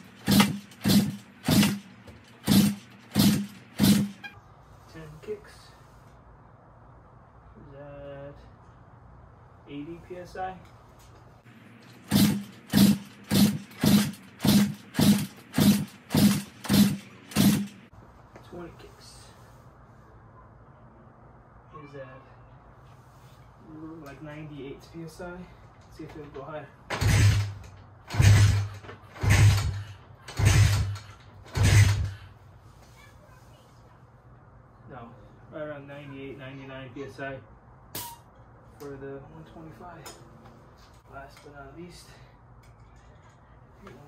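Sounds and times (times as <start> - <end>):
engine kicked over without firing: 0.0 - 4.3, 12.0 - 17.9, 26.9 - 32.3
motorcycle engine kicked over: 26.9 - 32.2.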